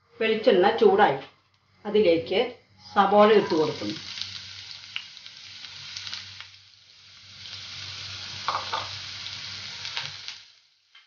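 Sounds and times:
onions sizzling in oil: 0:02.8 - 0:11.0.

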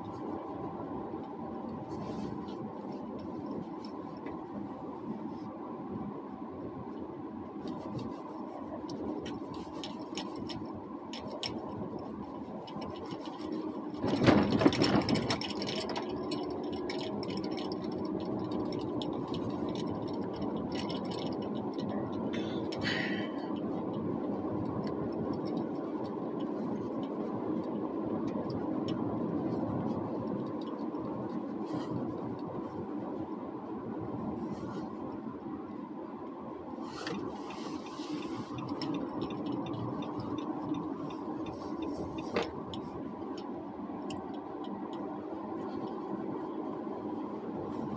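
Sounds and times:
car engine and tyre noise: 0:00.0 - 0:47.9
rattling and knocks: 0:12.7 - 0:21.9.

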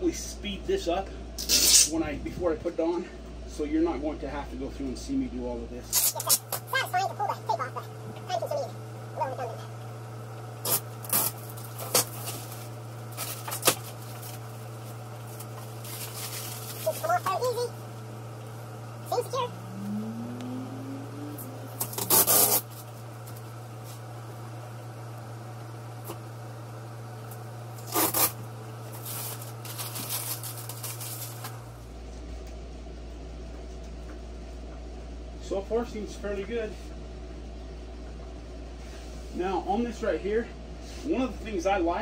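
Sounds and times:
steady low hum: 0:00.0 - 0:42.0
plastic film ripping: 0:10.6 - 0:14.4, 0:15.3 - 0:17.3, 0:21.8 - 0:22.8, 0:27.8 - 0:31.6
plastic crinkling: 0:10.7 - 0:17.3, 0:28.9 - 0:31.6
plastic wrap crackling: 0:10.7 - 0:17.3, 0:27.8 - 0:31.6.

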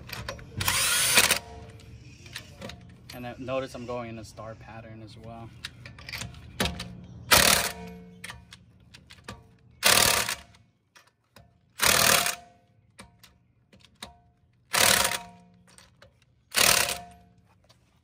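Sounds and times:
impact wrench rattling bursts: 0:06.8 - 0:08.0, 0:09.8 - 0:10.5, 0:11.8 - 0:12.5, 0:14.7 - 0:17.3.

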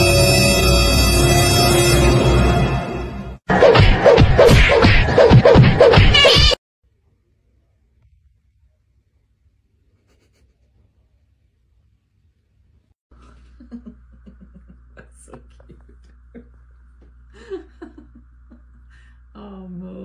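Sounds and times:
steady low hum: 0:13.1 - 0:20.0.

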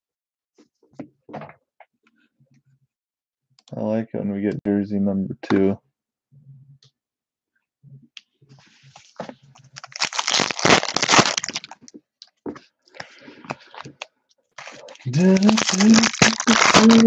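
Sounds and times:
plastic wrapper crinkling: 0:09.5 - 0:12.0, 0:13.5 - 0:17.0.

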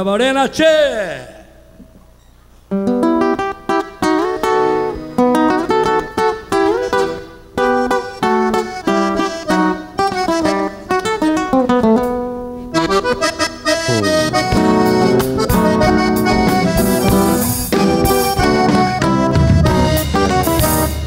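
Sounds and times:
acoustic guitar: 0:02.2 - 0:21.0
accordion: 0:03.0 - 0:11.7, 0:12.6 - 0:21.0
bass and drum kit: 0:13.8 - 0:21.0.

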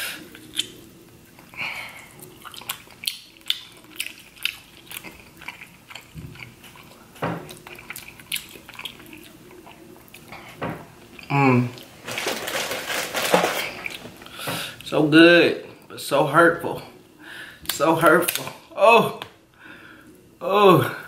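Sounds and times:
chewing and wet mouth sounds: 0:00.2 - 0:11.9.

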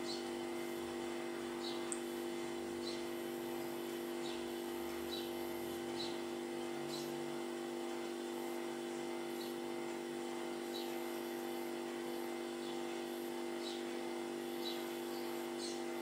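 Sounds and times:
low mechanical hum: 0:00.0 - 0:16.0
faint sparrow chirps: 0:01.6 - 0:01.9, 0:02.8 - 0:03.1, 0:04.2 - 0:04.5, 0:05.1 - 0:07.2, 0:13.6 - 0:13.9, 0:14.5 - 0:15.9.

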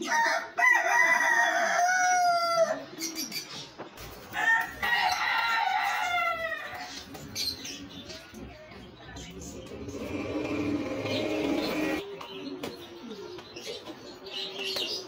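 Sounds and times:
rooster crowing: 0:00.0 - 0:02.8, 0:04.4 - 0:06.9.

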